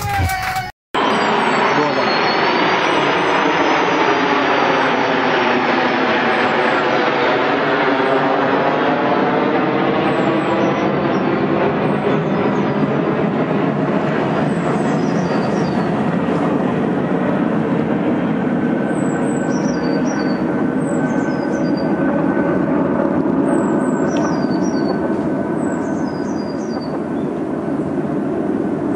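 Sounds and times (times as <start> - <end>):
loud steady noise: 0.0 - 8.2.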